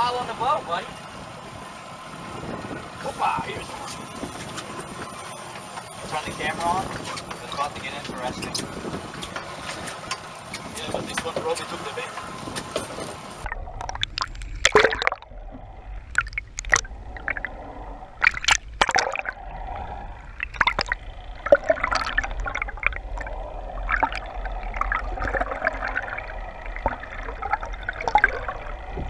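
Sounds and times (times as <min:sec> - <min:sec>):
water gurgling and sloshing: 0:00.0 - 0:29.0
steady low hum: 0:11.7 - 0:29.0
sharp clicks and pops: 0:13.4 - 0:17.6, 0:18.2 - 0:19.5, 0:20.3 - 0:29.0.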